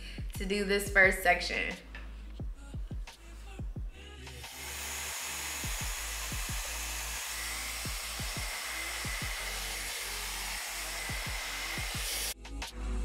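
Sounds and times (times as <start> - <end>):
background music with deep bass: 0.0 - 4.8, 5.6 - 13.0
hair dryer blowing: 4.4 - 12.4.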